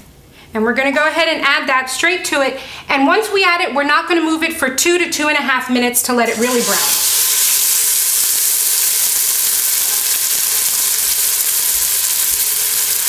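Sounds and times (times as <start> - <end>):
chicken sizzling in oil: 6.3 - 13.0.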